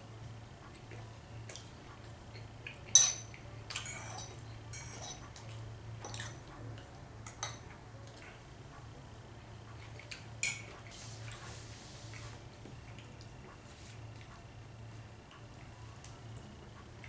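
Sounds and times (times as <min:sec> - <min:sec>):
faint low hum: 0:00.0 - 0:17.0
cutlery clinking on a plate: 0:02.9 - 0:05.3.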